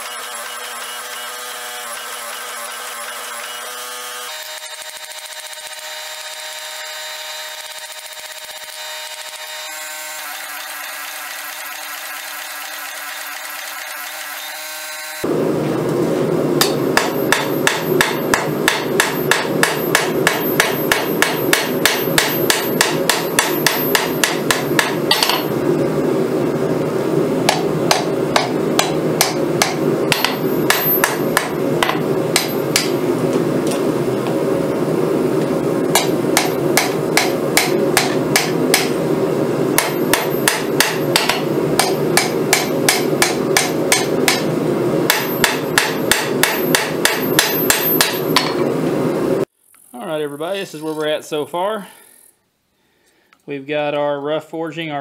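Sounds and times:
steady multi-tone hum: 14.5s - 55.0s
hammer striking steel on anvil: 16.6s - 25.6s, 27.5s - 33.1s, 35.9s - 39.0s, 39.8s - 44.5s, 45.1s - 48.6s.

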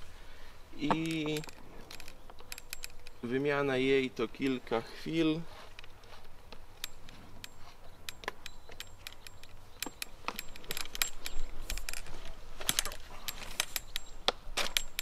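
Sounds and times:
small metallic clicks and rattles: 0.8s - 3.4s, 5.7s - 15.0s.

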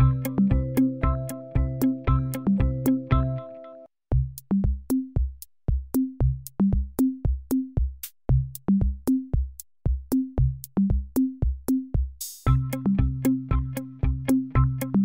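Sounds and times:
drum-machine beat: 0.0s - 3.4s, 4.1s - 15.0s
electronic music: 0.0s - 3.9s, 12.4s - 15.0s.

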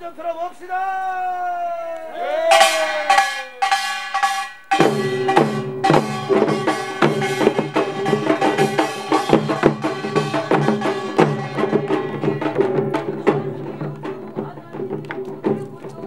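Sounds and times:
percussion band of drums and gongs: 2.3s - 16.0s
ringing gong strikes: 2.5s - 12.6s.

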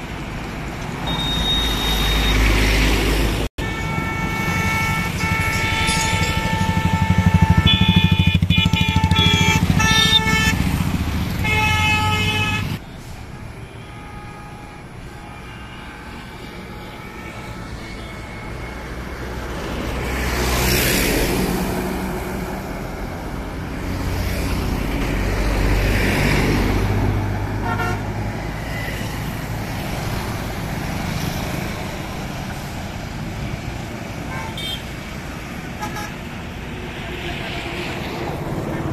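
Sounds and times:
highway traffic passing: 0.0s - 38.9s
short horn beeps: 1.0s - 2.6s.

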